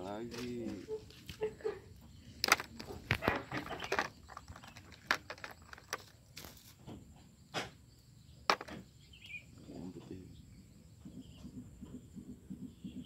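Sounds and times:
lures rummaged in plastic tackle box: 2.4s - 6.7s
plastic crinkling: 2.4s - 6.7s.

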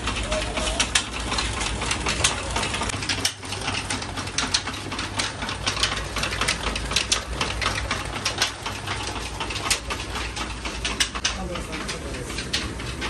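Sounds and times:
mechanical clattering of belts: 0.0s - 13.0s.

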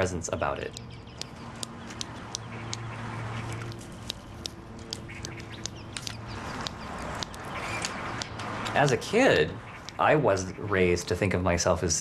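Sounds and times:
tongue clicks: 3.6s - 7.4s.

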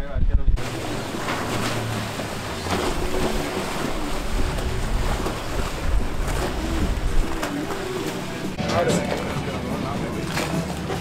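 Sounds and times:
wind buffeting microphone: 0.0s - 1.3s, 2.3s - 8.6s
boat engine running: 0.4s - 11.0s
waves sloshing: 0.6s - 11.0s.

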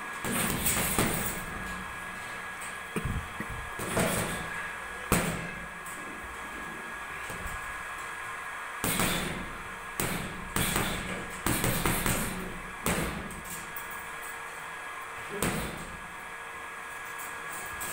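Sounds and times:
gloves thudding on punching bag: 8.8s - 13.3s.

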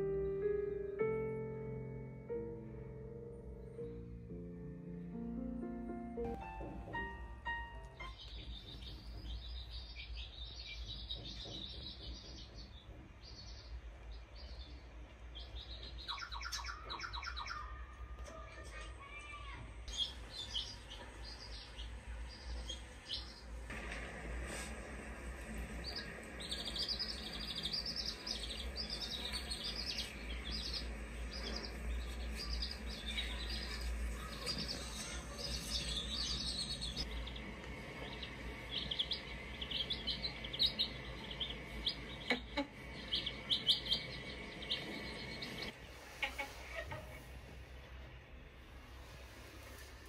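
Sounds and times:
baby chicks peeping: 6.2s - 23.9s, 25.4s - 47.3s.

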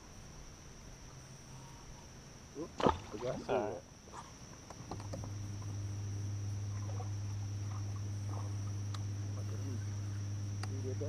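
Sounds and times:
electric motor humming: 4.8s - 11.0s.

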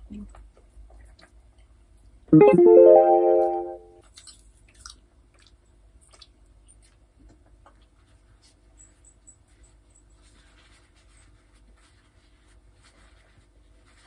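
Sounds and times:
rising harp-like run: 2.4s - 3.9s
faint chewing: 4.1s - 8.0s.

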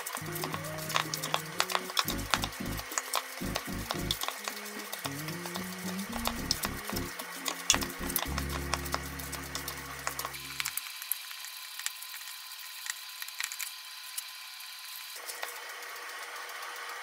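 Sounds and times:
low steady hum: 0.0s - 4.2s, 5.1s - 10.7s.

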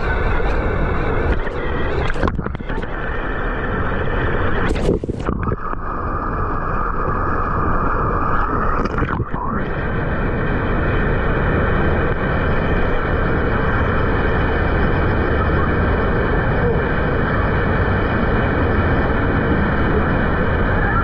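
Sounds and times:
rushing turbulent water: 0.0s - 21.0s.

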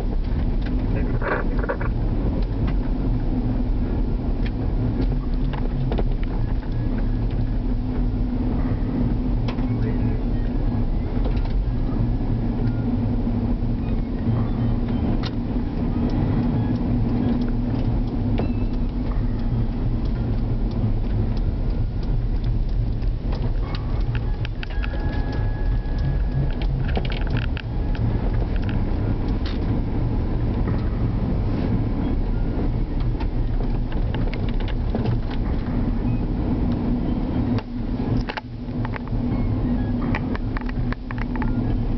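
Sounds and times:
car engine hum: 0.0s - 41.9s
small clicks and rattles: 17.0s - 29.8s, 33.0s - 35.7s.

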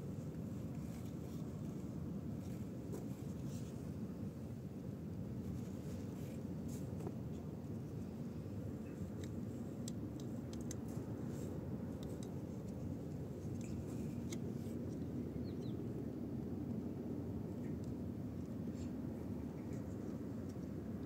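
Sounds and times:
low background hum: 0.0s - 21.0s
clicks of wires being handled: 8.8s - 15.0s.

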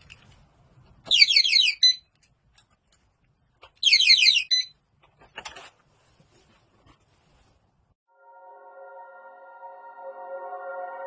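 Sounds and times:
security alarm electronic chirps: 3.8s - 4.8s.

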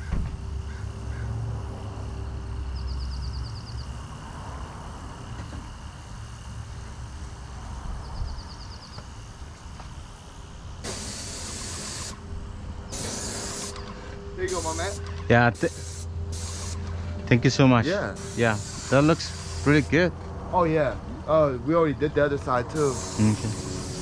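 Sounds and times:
paint spray gun hissing: 10.1s - 12.3s, 12.9s - 17.0s, 18.1s - 20.0s, 22.7s - 24.0s.

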